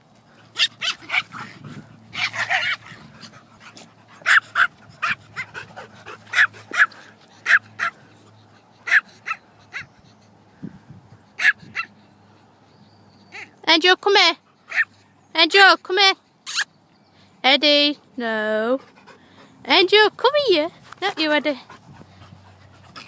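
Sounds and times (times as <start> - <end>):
dogs barking: 4.2 - 8.0, 8.8 - 9.9, 11.4 - 12.0.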